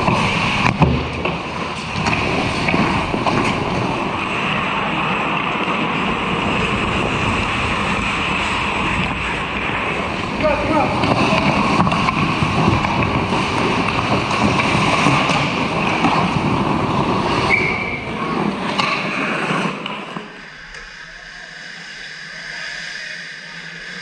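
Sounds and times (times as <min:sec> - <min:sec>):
hockey sticks clacking: 0:00.0 - 0:06.5, 0:08.9 - 0:21.0
skates scraping on ice: 0:00.0 - 0:22.0
rink hum with distant play: 0:00.0 - 0:24.0.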